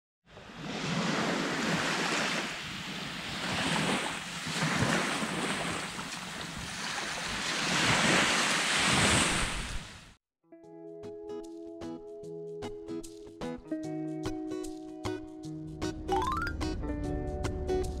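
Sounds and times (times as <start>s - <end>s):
small waves washing onto beach: 0.3s - 10.2s.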